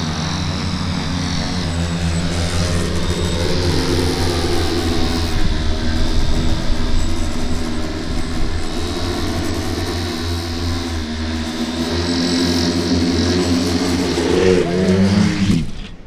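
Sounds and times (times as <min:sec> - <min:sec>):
multirotor propellers buzzing: 0:00.0 - 0:16.0.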